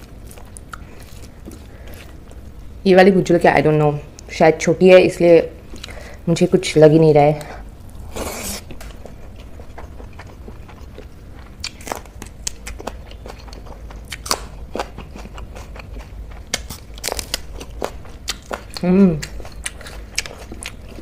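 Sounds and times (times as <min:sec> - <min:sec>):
person chewing: 0:00.0 - 0:02.6, 0:05.7 - 0:06.1, 0:07.4 - 0:21.0
crunchy bites into spring onion: 0:11.6 - 0:20.8.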